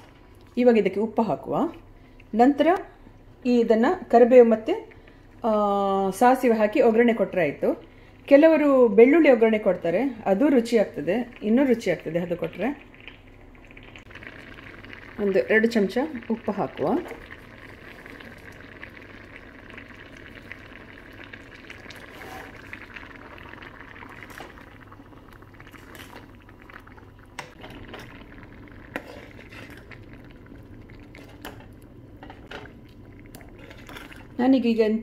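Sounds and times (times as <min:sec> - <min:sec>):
gravy bubbling: 0:09.0 - 0:35.0.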